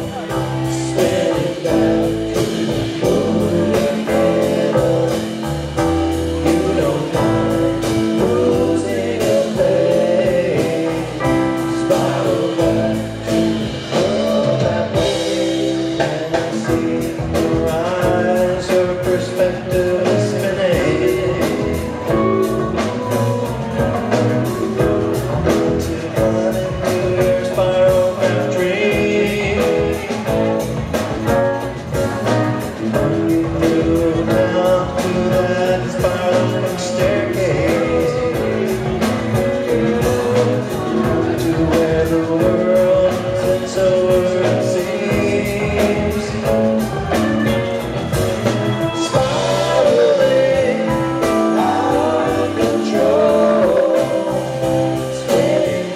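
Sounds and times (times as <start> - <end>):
live rock band playing: 0.0 - 55.9.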